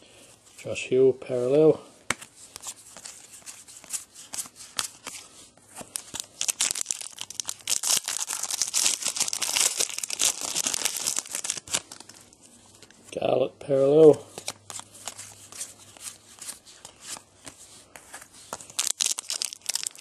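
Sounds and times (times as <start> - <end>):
foil wrapper tearing and crinkling: 6.0 - 12.3, 18.6 - 20.0.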